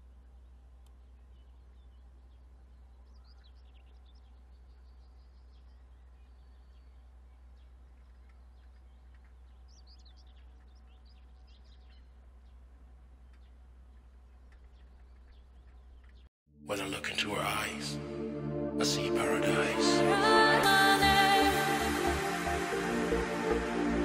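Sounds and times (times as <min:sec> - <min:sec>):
small birds chirping: 0:00.0 - 0:16.3.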